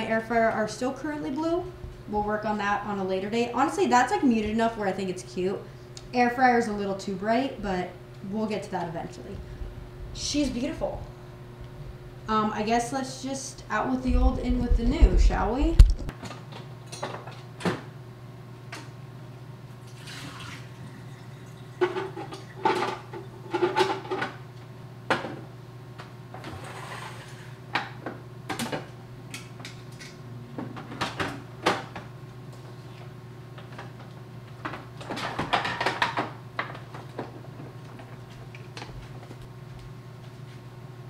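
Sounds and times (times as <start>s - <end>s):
steady low hum: 0.0s - 16.2s.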